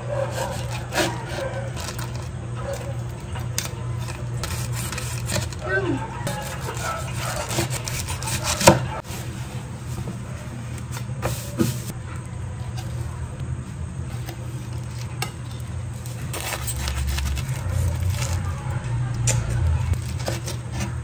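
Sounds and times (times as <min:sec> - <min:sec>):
steady low hum: 0:00.0 - 0:21.0
knife sawing through crisp breading: 0:00.1 - 0:02.9, 0:04.0 - 0:09.0, 0:16.1 - 0:18.6.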